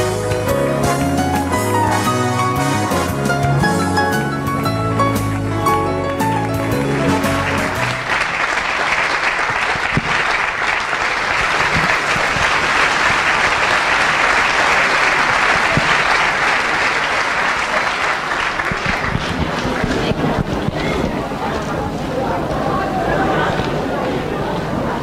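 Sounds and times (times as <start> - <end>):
dance music: 0.0 - 8.1
audience applauding: 4.4 - 20.9.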